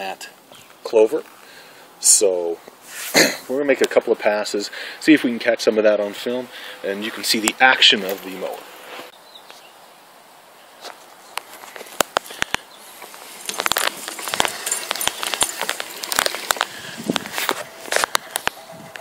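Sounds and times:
reel mower cutting grass: 12.8 - 19.0.

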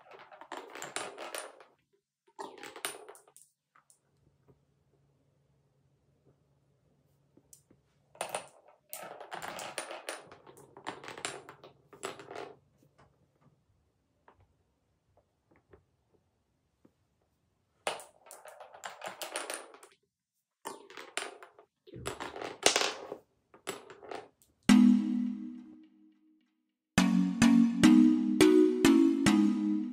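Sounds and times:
marbles rolling through wooden run: 0.0 - 3.5, 8.2 - 12.7, 17.8 - 20.0, 20.6 - 24.4.

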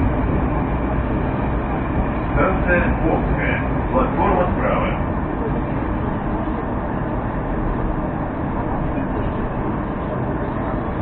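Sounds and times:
metro train rumble from inside: 0.0 - 11.0.

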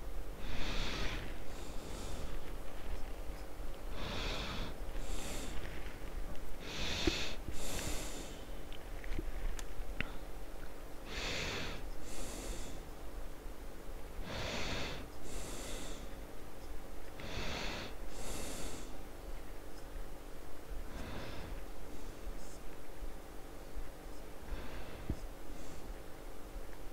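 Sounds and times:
person breathing heavily: 0.3 - 2.9, 3.8 - 8.6, 11.0 - 12.9, 14.2 - 16.3, 17.2 - 19.0, 20.8 - 22.6, 24.4 - 26.1.

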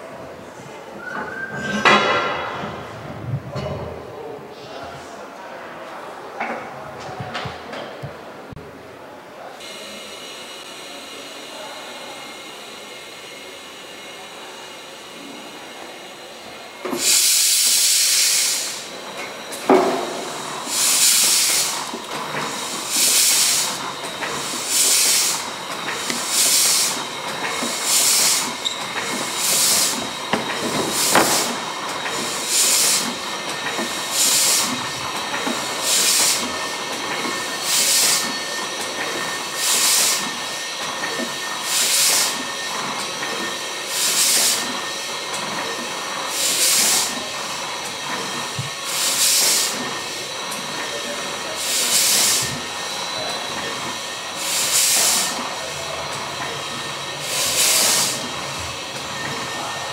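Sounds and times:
steam engine turning over: 9.6 - 59.9
steam hissing: 9.6 - 59.9
steam engine knock: 19.6 - 42.6.

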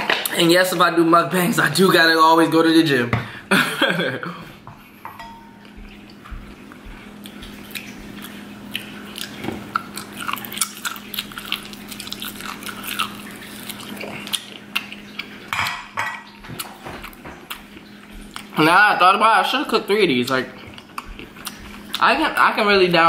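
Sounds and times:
steady low hum: 0.0 - 23.0
wet mouth chewing sounds: 5.6 - 15.5, 16.4 - 18.6, 20.2 - 22.4.

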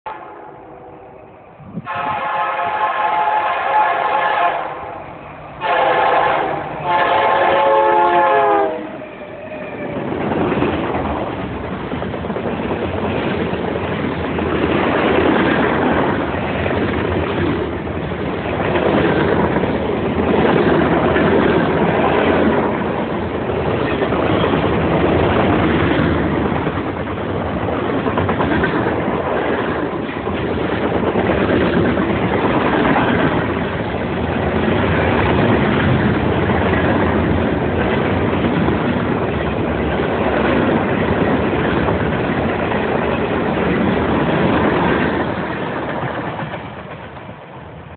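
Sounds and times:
train air horn blasts: 0.1 - 1.0, 1.8 - 9.0
freight train wheels rumbling: 0.1 - 47.9.

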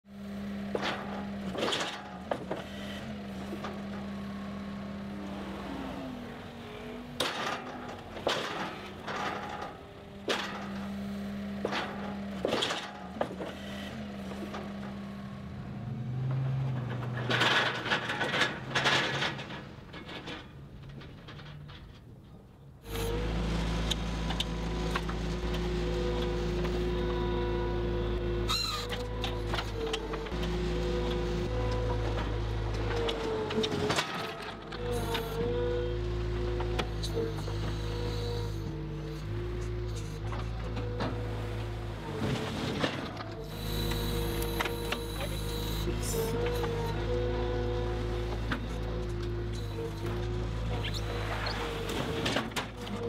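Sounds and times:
diesel engine running: 0.1 - 22.0, 22.8 - 53.0
logs knocking and clanking on metal: 16.2 - 22.3.

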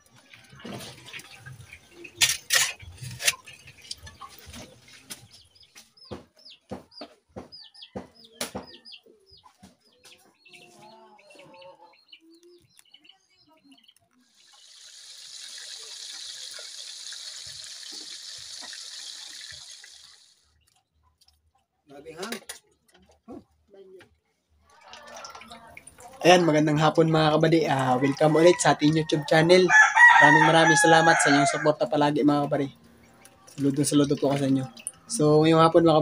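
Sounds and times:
chickens clucking: 0.0 - 21.5, 24.8 - 36.0
fish sizzling in hot oil: 14.3 - 20.5.

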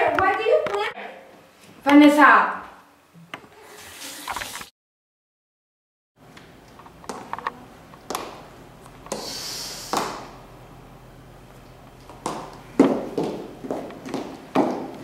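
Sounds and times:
footsteps on a staircase: 12.0 - 15.0.

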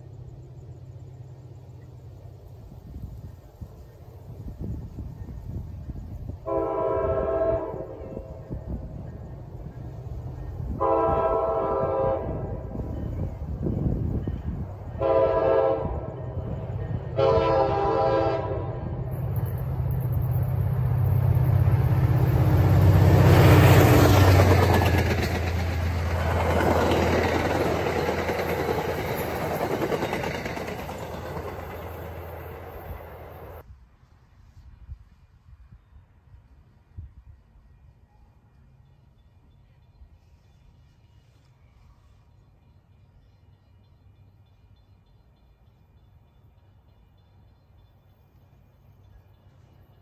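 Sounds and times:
wheels on rail: 0.0 - 33.7, 37.7 - 50.0
train engine drone: 0.0 - 50.0
train horn blasts: 6.4 - 8.6, 10.7 - 12.9, 14.9 - 19.1.

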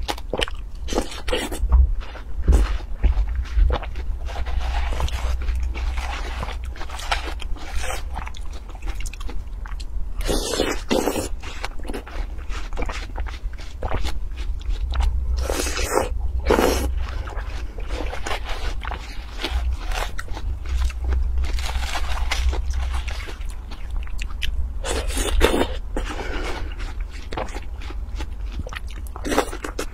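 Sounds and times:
low hum: 0.0 - 29.9
wet crunchy bites and chewing: 0.0 - 29.9.

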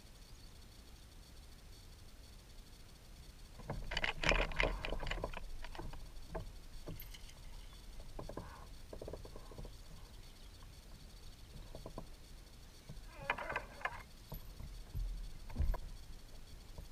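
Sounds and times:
fishing gear clicking and rattling: 3.6 - 16.9.

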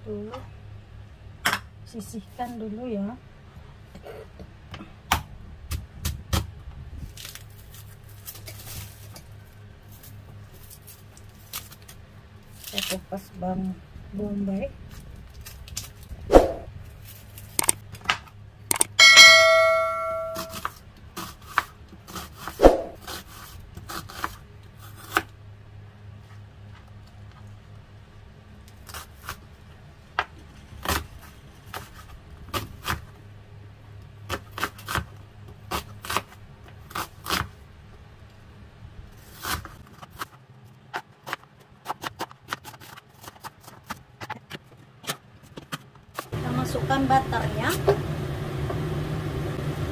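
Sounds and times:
low steady hum: 6.6 - 21.2
metallic ding: 18.7 - 20.6.

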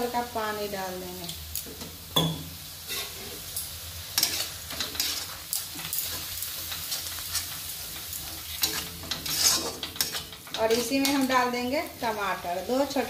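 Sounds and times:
spices sizzling in oil: 0.0 - 13.0
spatula scraping a pan: 2.8 - 11.5.

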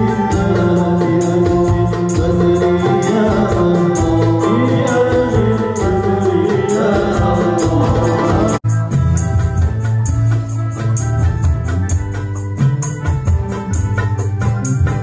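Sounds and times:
song with singing over a beat: 0.0 - 9.0.

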